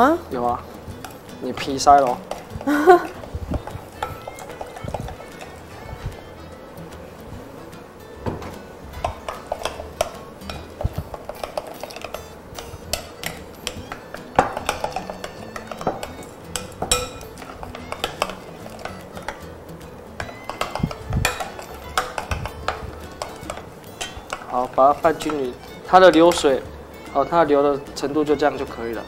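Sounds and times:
utensil scraping glass bowl: 0:01.6 - 0:06.4, 0:09.0 - 0:19.6.

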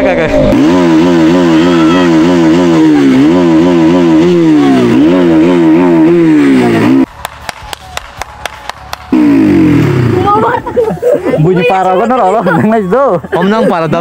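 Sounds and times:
motorcycle engine revving: 0:00.0 - 0:07.4, 0:08.9 - 0:10.8
hand claps: 0:07.2 - 0:09.2.

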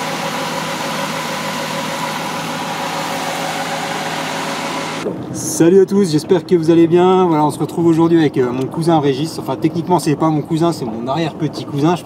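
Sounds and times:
steady machine noise: 0:00.0 - 0:05.0.

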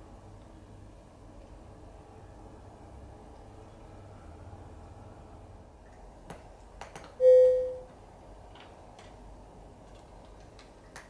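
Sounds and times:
bell-like ding: 0:07.2 - 0:07.8
cats crunching dry kibble: 0:09.8 - 0:11.0.

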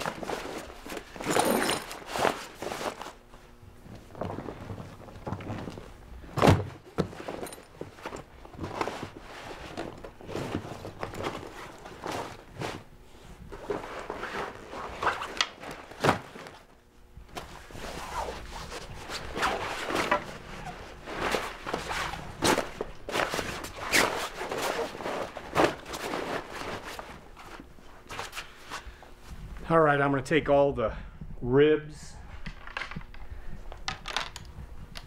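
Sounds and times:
heavy fabric rustling and flapping: 0:00.0 - 0:16.7, 0:17.3 - 0:28.4.

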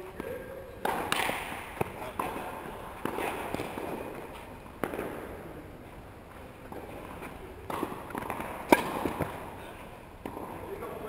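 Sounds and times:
tennis ball impacts: 0:00.1 - 0:11.0.

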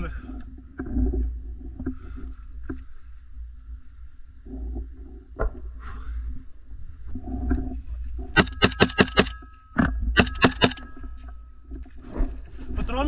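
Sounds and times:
rifle firing bursts: 0:08.4 - 0:09.4, 0:10.2 - 0:10.8.

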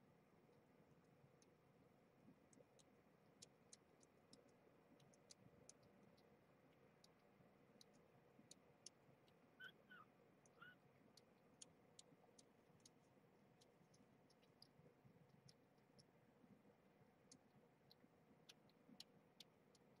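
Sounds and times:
kitten suckling clicks: 0:02.6 - 0:06.2
faint kitten squeaks: 0:09.6 - 0:10.9.

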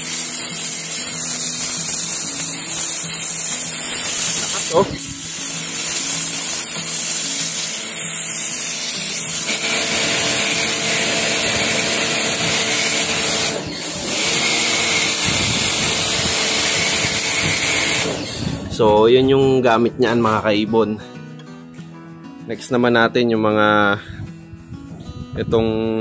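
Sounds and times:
pressure washer jet hissing: 0:00.0 - 0:18.6.

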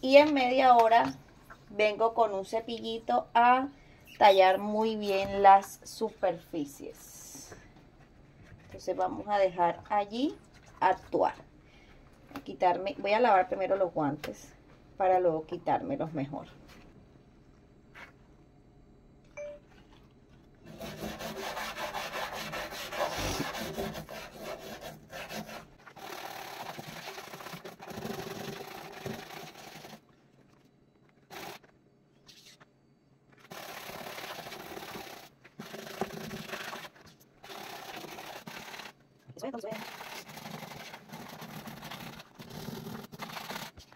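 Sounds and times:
brush scrubbing a stovetop: 0:20.7 - 0:30.1.

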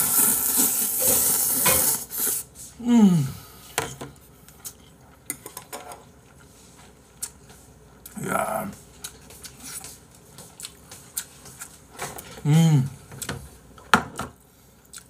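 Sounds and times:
person slurping noodles: 0:00.0 - 0:02.4
person humming mm: 0:02.8 - 0:03.5, 0:12.4 - 0:13.0.

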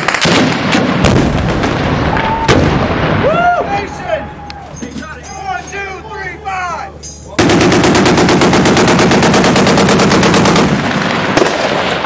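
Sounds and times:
machine-gun fire with echo: 0:00.0 - 0:03.2, 0:07.4 - 0:12.0.

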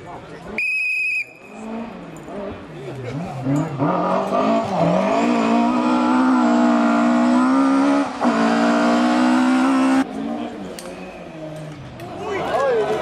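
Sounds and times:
rally car engine at high revs: 0:01.5 - 0:10.6.

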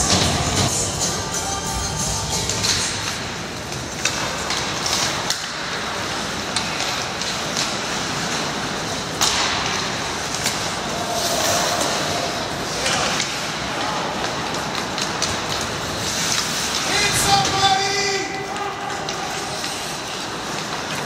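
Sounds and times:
skates scraping on ice: 0:00.0 - 0:21.0
sticks and puck knocking: 0:02.3 - 0:10.9, 0:12.7 - 0:21.0.

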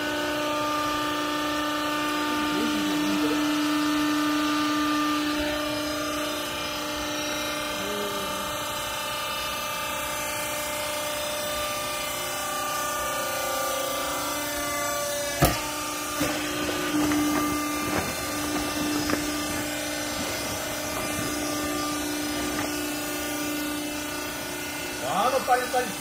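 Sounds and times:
hydraulic power unit humming: 0:00.0 - 0:26.0
sharp knocks: 0:15.4 - 0:19.5
bag rustling: 0:16.2 - 0:22.7.

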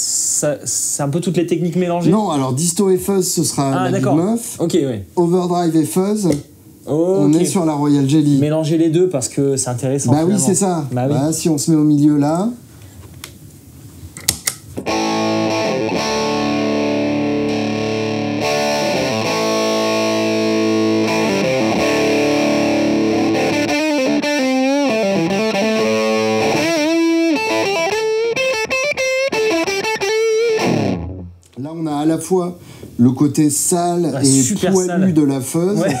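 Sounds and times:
distorted electric guitar: 0:14.8 - 0:31.4.

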